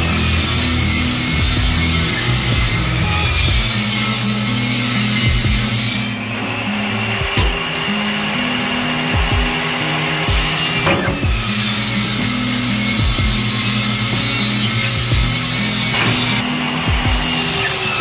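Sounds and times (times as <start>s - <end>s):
low bass line: 0.0s - 4.0s, 5.1s - 7.7s, 12.6s - 17.3s
low thumping beat: 1.2s - 4.0s, 5.2s - 5.9s, 7.2s - 7.9s, 9.1s - 15.7s, 16.3s - 17.6s.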